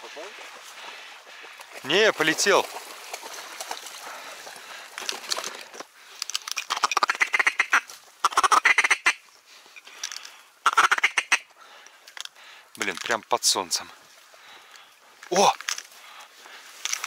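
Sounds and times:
ducks quacking: 0.0 - 1.7, 6.7 - 9.2, 10.6 - 11.5
faint rustle: 7.7 - 8.3, 11.5 - 17.0.

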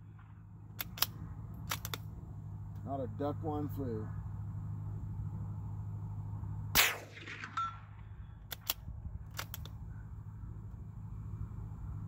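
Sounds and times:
rifle bolt clicks: 0.8 - 2.1, 8.5 - 9.8
suppressed rifle shot: 6.7 - 9.8.

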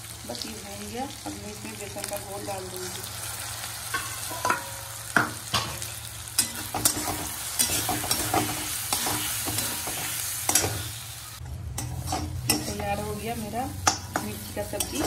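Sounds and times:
hot oil sizzling: 0.0 - 15.0
spatula scraping and tapping a pan: 3.9 - 10.8, 11.8 - 12.9, 13.8 - 15.0.

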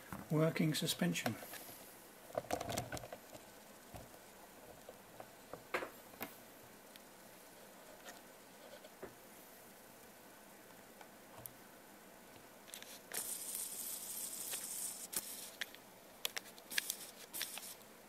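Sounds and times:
camera handling rustle: 12.7 - 13.6, 14.4 - 17.8.

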